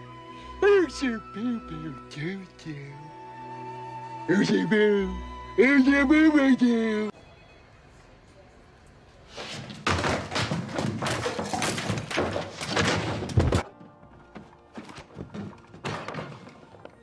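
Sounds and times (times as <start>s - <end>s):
quiet music: 0.0s - 8.8s, 12.7s - 17.0s.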